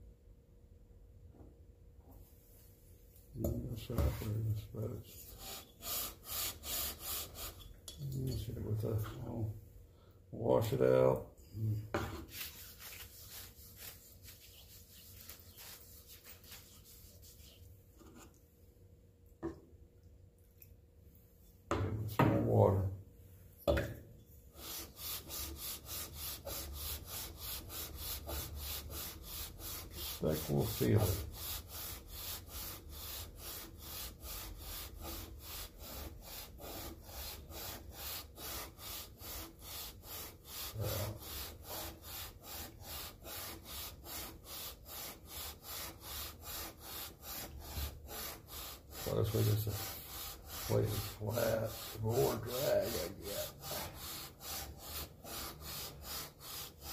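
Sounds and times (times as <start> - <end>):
metal rasping on wet sandpaper: 5.2 - 7.7, 12.2 - 18.3, 24.6 - 56.9.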